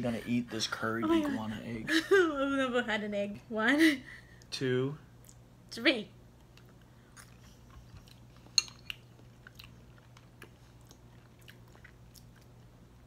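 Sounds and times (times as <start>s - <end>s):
low steady hum: 0.0s - 13.0s
quiet chewing: 6.4s - 13.0s.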